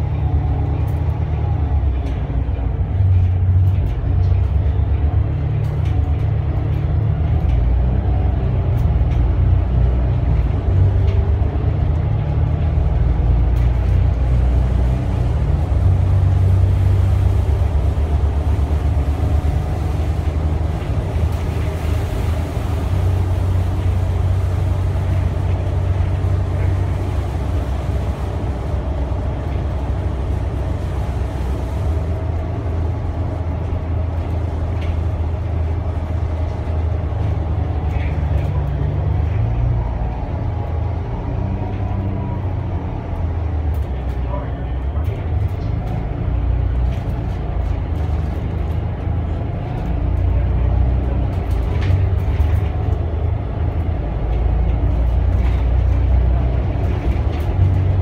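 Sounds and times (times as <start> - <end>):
bus engine drone: 0.0 - 58.0
road noise: 0.0 - 58.0.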